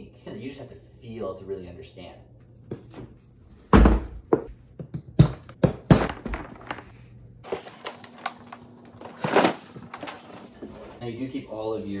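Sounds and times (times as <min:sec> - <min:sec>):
plastic hull rustling: 0:06.3 - 0:11.0.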